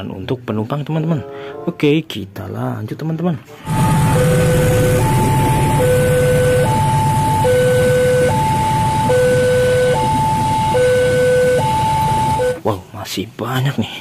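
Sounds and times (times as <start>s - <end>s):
level crossing two-tone alarm: 3.6s - 12.6s.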